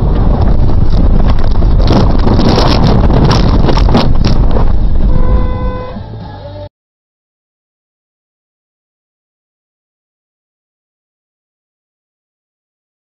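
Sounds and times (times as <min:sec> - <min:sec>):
crackling: 0:00.0 - 0:05.2
wind on microphone: 0:00.0 - 0:06.2
engine and tyre rumble: 0:00.0 - 0:06.7.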